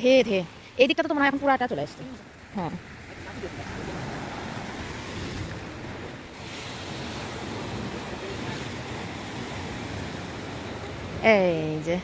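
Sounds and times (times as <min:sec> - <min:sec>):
sea surf breaking: 0:01.3 - 0:12.0
wind on microphone: 0:02.5 - 0:11.4.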